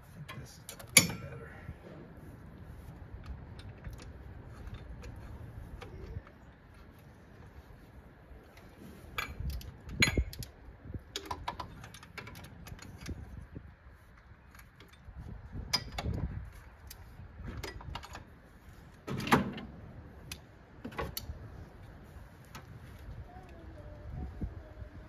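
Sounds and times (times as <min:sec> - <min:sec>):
metal clank: 0:00.8 - 0:01.5.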